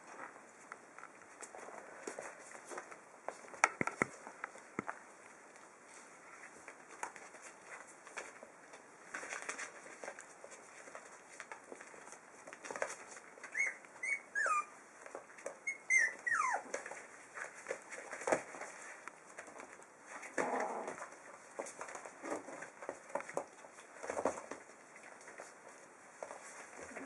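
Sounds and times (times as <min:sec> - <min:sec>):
paws scratching on paper: 0:00.1 - 0:27.0
puppies whining: 0:13.4 - 0:14.8, 0:15.5 - 0:16.9.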